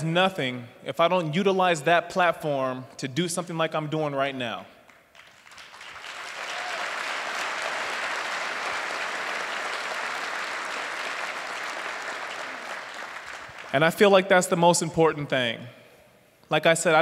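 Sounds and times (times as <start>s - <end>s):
audience applauding: 4.9s - 13.9s.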